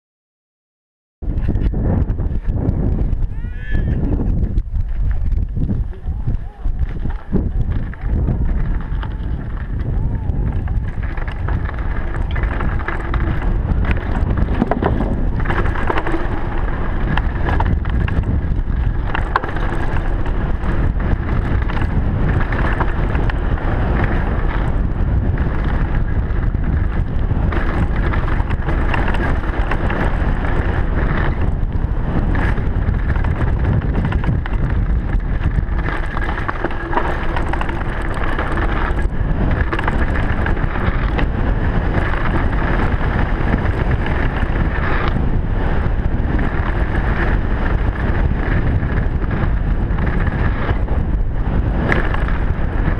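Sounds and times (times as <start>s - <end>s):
wind rushing over microphone: 1.2s - 52.9s
tyres rumbling over rocky dirt: 4.2s - 52.9s
bike clattering on stones: 6.8s - 24.3s, 32.4s - 44.4s.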